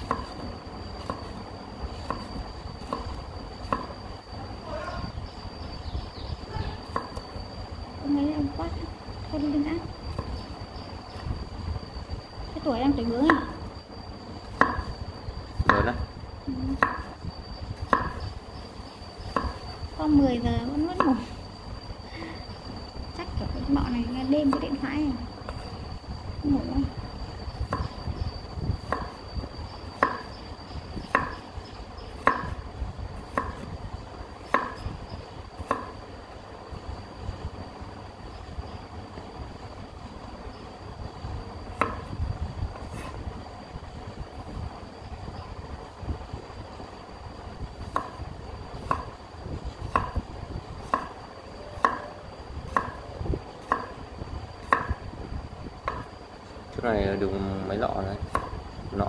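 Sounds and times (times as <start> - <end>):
cleaver chopping on wooden board: 14.6 - 14.9, 19.3 - 19.6, 30.0 - 30.3, 31.1 - 31.4, 32.2 - 32.6, 34.5 - 34.8, 35.6 - 35.9, 48.8 - 49.1, 49.9 - 50.2, 50.9 - 51.2, 51.8 - 52.1, 52.7 - 53.0, 53.6 - 54.0, 54.7 - 55.0, 58.3 - 58.6.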